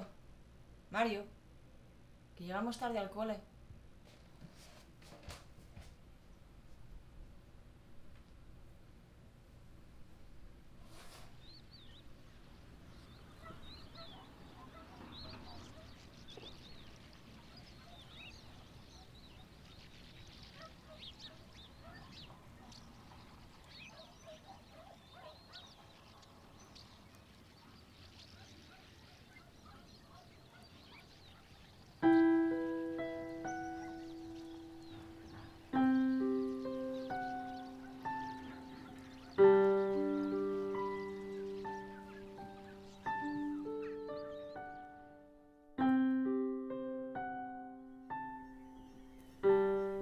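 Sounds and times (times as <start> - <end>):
small birds chirping: 9.8 - 50.0
piano notes ringing: 32.0 - 50.0.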